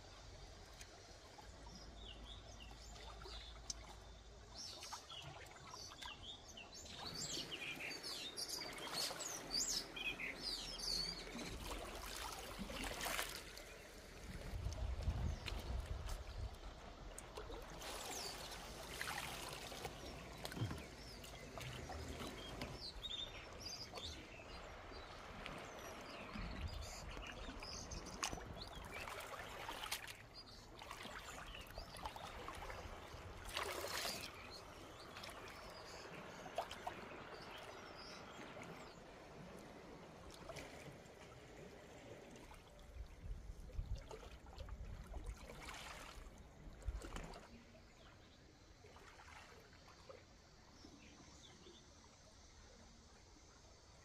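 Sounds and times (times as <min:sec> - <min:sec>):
water lapping against rocks: 0:02.8 - 0:48.0
water rush: 0:06.7 - 0:43.3.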